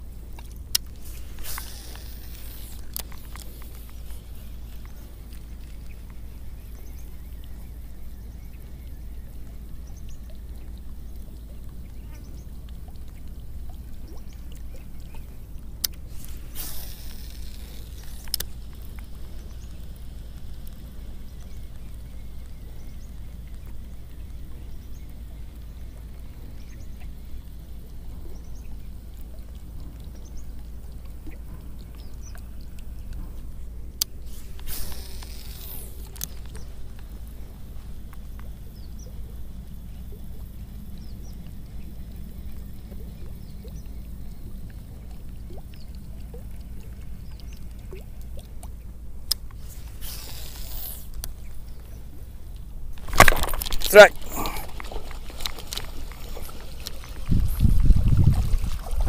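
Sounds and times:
fishing reel click: 0.7 - 6.0, 15.8 - 19.7, 34.0 - 37.0, 49.2 - 51.5
fishing reel ticking: 0.7 - 7.2, 15.9 - 21.8, 34.0 - 37.4, 49.2 - 51.6
spool whirring: 0.8 - 7.1, 16.0 - 19.9, 34.2 - 37.0.

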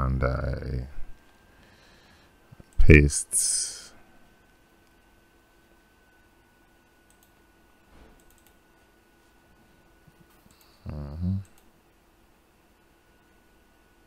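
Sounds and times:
computer mouse clicks: 7.0 - 7.4, 8.2 - 8.6, 11.4 - 11.7.

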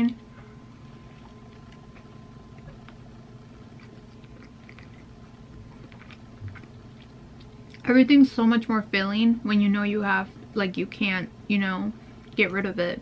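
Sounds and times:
steady background hum: 0.0 - 13.0
faint chewing: 0.3 - 7.9.

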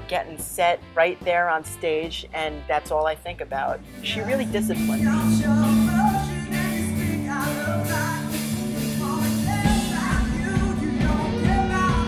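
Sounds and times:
band playing: 3.4 - 12.0
steady drum beat: 3.7 - 12.0
man singing rock song: 4.0 - 12.0.

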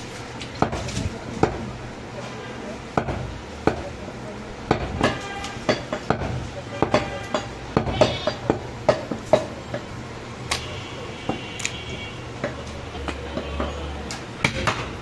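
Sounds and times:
cleaver chopping meat on wood: 3.0 - 3.9, 4.7 - 5.2, 5.8 - 9.9, 14.4 - 14.9.

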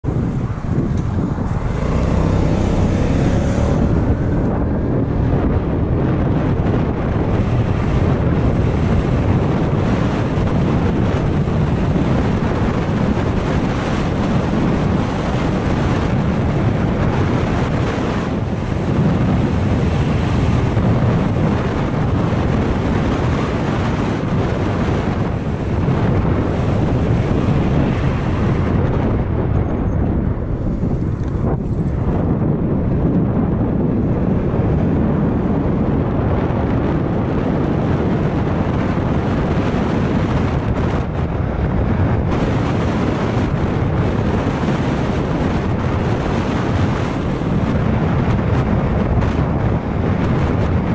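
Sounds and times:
tyre noise: 0.0 - 5.4
scooter running: 0.0 - 21.5
wind buffeting microphone: 0.0 - 50.9.

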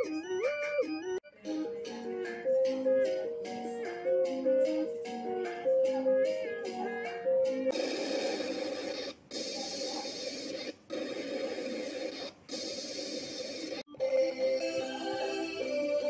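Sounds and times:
harsh static noise: 7.7 - 13.9.

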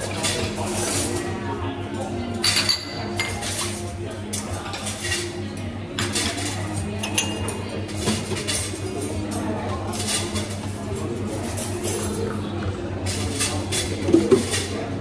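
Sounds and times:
crockery and metal clinking: 0.0 - 1.4, 2.0 - 12.4.

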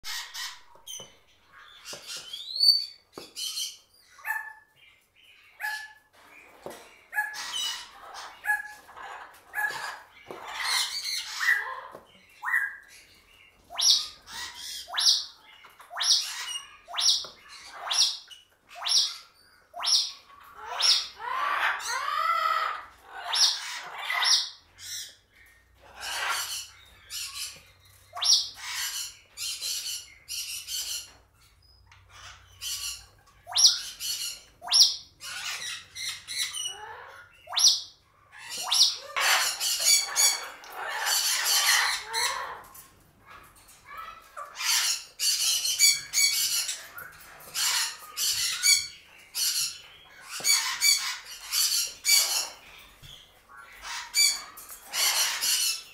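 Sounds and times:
parrot calling: 7.1 - 12.9, 13.7 - 25.2, 25.8 - 31.2, 31.9 - 55.9.

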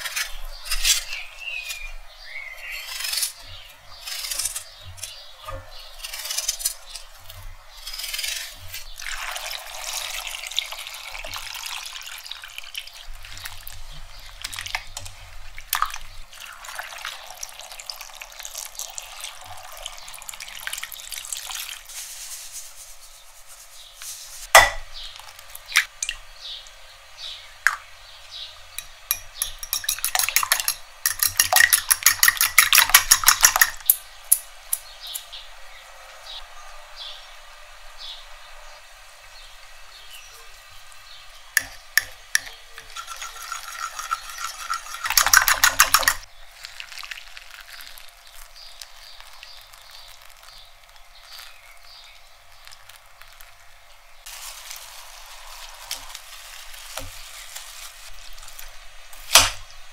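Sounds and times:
water pouring into steel pot: 9.0 - 13.7, 15.6 - 21.9, 41.6 - 48.1
fork beating eggs in bowl: 28.8 - 34.0, 41.6 - 50.6
utensils clicking and knocking: 28.8 - 35.3, 41.6 - 46.3.

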